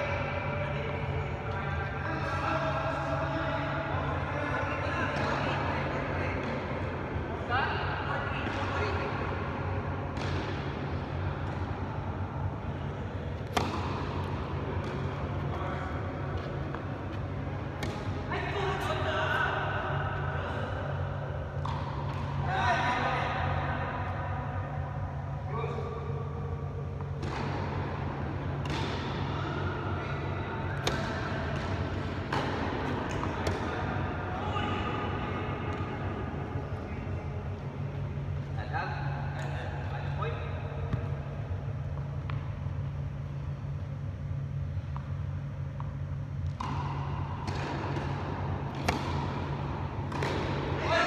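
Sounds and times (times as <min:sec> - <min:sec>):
steady low hum: 0:00.0 - 0:51.0
ball bouncing on court: 0:10.1 - 0:11.8, 0:13.4 - 0:15.8, 0:16.4 - 0:18.4, 0:21.6 - 0:22.6, 0:27.0 - 0:34.8, 0:44.9 - 0:51.0
racket striking tennis ball: 0:13.4 - 0:18.3, 0:30.7 - 0:33.8, 0:46.5 - 0:50.9.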